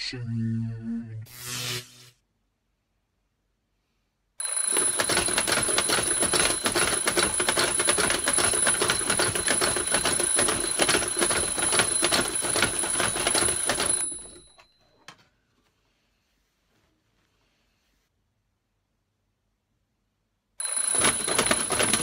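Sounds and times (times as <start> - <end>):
twin-bell alarm clock ringing: 4.4 - 14.8, 20.6 - 22.0.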